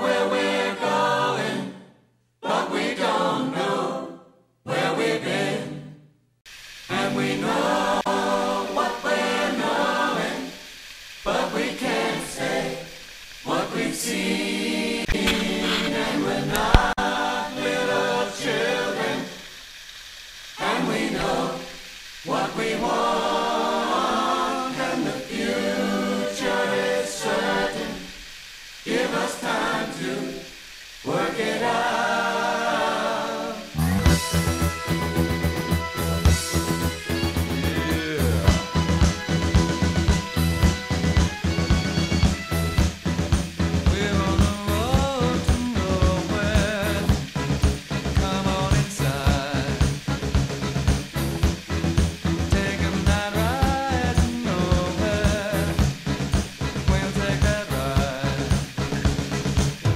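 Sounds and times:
choir singing: 0.0 - 6.1, 6.9 - 19.6, 20.6 - 42.4, 52.6 - 55.9.

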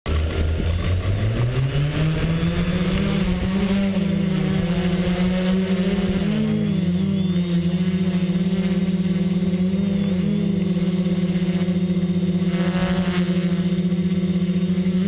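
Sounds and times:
quadcopter motors buzzing: 0.1 - 15.0.

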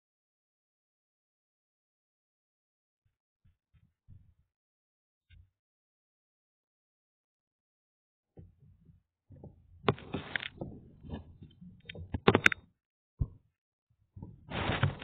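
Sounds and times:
phone handling noise: 11.9 - 12.6.

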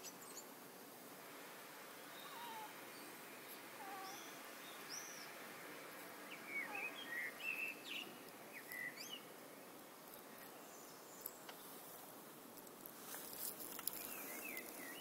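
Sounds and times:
steady low hiss: 0.0 - 15.0
cat chirping: 3.8 - 4.2.

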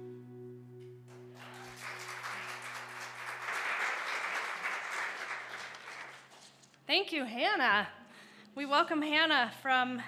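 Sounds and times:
sustained music chord: 0.0 - 2.8
congregation applauding: 1.1 - 6.7.

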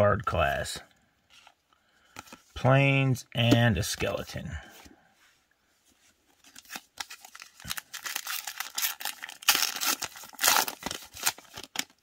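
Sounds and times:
foil wrapper tearing and crinkling: 6.6 - 12.0.

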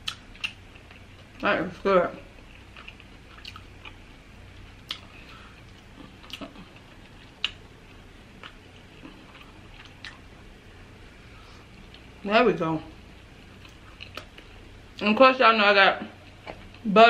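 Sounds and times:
chewing clicks and smacks: 0.0 - 1.3, 2.4 - 4.0, 4.8 - 5.1, 8.4 - 10.2, 13.6 - 14.4.

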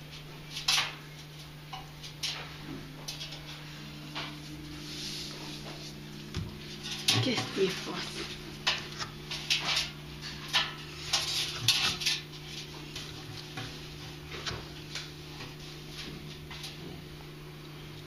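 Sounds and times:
steady low hum: 0.0 - 18.0
claws scrabbling on metal drum: 6.6 - 14.7.

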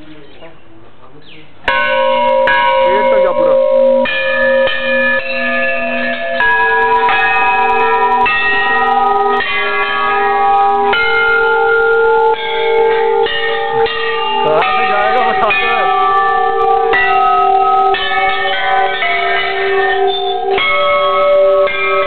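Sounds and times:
metal bells ringing: 1.7 - 22.0.

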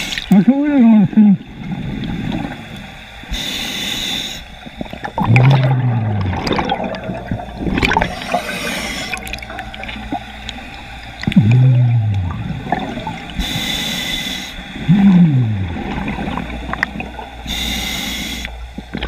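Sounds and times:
exhaled bubbles burbling: 1.0 - 2.8, 4.6 - 13.4, 14.8 - 17.5
regulator hissing inhale: 3.3 - 4.6, 8.0 - 9.4, 13.3 - 14.9, 17.4 - 18.8.

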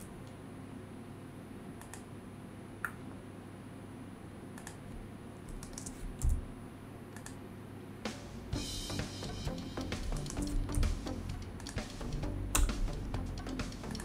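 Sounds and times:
faint steady hum: 0.0 - 14.0
mouse clicks: 1.8 - 2.1, 4.6 - 4.8, 7.1 - 7.4
computer keyboard clicks: 4.6 - 4.8, 5.5 - 6.4, 7.2 - 7.4, 11.6 - 11.9.

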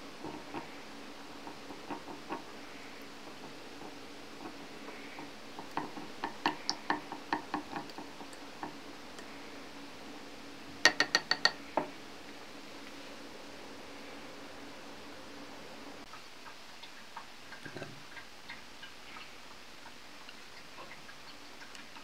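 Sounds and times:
chopsticks beating egg in bowl: 0.0 - 9.3, 10.8 - 11.9
sharp knocks on bowl: 10.8 - 11.9.

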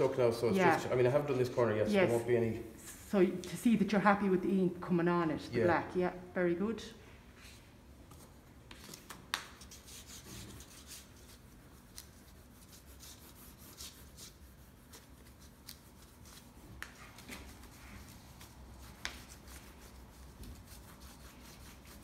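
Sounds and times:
wooden spoon rubbing paper: 9.6 - 22.0.

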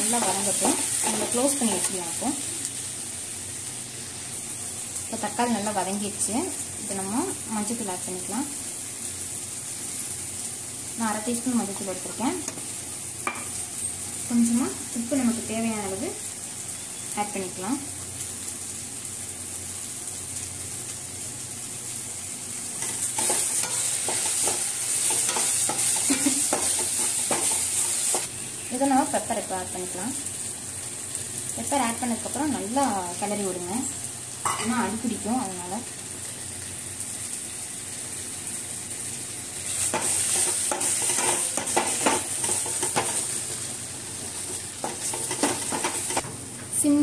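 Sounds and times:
masala sizzling in oil: 0.0 - 47.0
steel spatula scraping a pan: 22.8 - 28.2, 39.8 - 43.3, 44.4 - 46.2.

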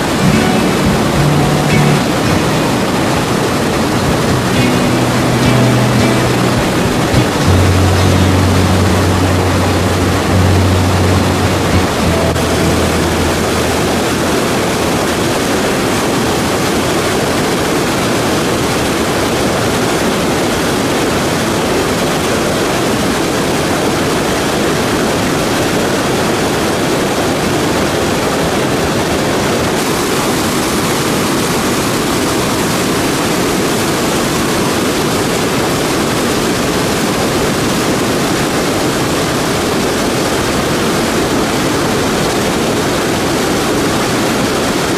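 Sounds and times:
low hum: 0.0 - 16.2
river rapids rushing: 0.0 - 44.9.

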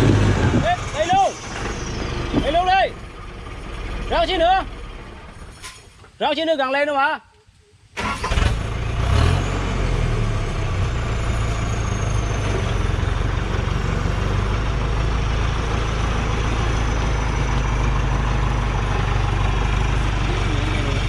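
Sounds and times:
diesel truck engine running: 0.0 - 5.6, 8.0 - 21.0.

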